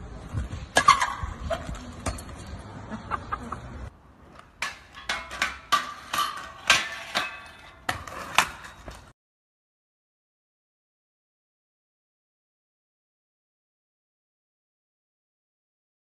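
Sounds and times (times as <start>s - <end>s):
scooter clacks on grind rail: 4.4s - 9.1s.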